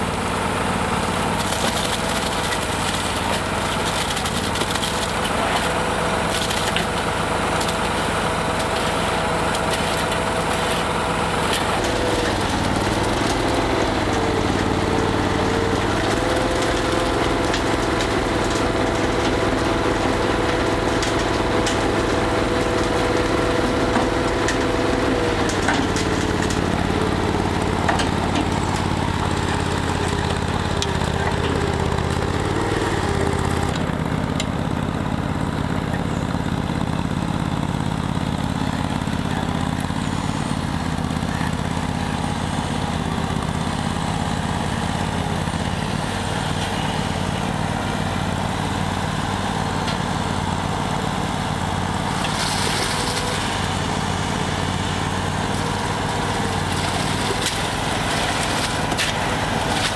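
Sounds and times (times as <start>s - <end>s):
concrete mixer running: 0.0s - 59.9s
skid steer loader engine: 0.0s - 59.9s
concrete pouring into bucket: 0.1s - 59.9s.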